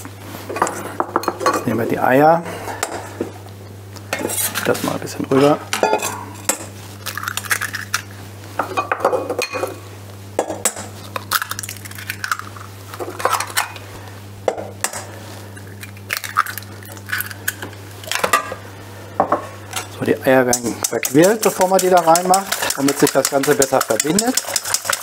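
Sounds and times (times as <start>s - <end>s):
steady low hum: 0.0s - 25.0s
eggs cracking on metal bowl: 10.5s - 13.8s, 15.6s - 18.3s, 20.6s - 25.0s.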